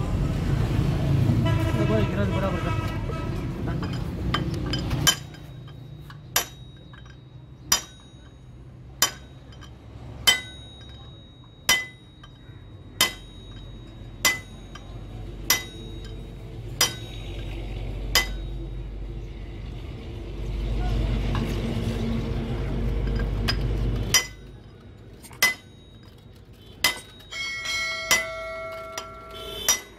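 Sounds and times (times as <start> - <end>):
hammer striking steel drift: 3.8 - 18.9, 23.1 - 24.6, 25.2 - 29.9.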